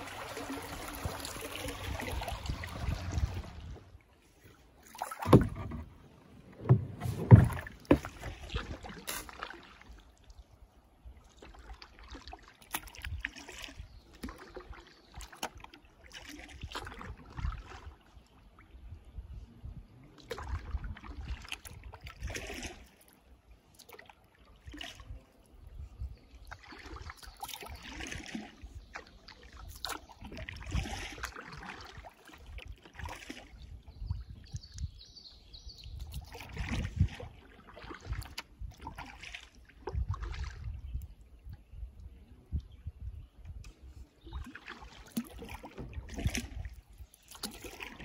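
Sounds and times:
water trickling off paddle: 0.0s - 18.7s, 26.4s - 41.7s, 43.5s - 48.0s
paddle strokes splashing water: 0.0s - 18.8s, 20.1s - 41.5s, 43.5s - 48.0s
low microphone rumble: 2.1s - 3.9s.

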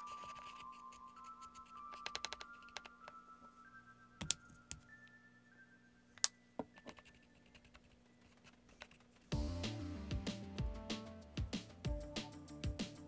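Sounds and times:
quiet background music: 0.0s - 13.0s.

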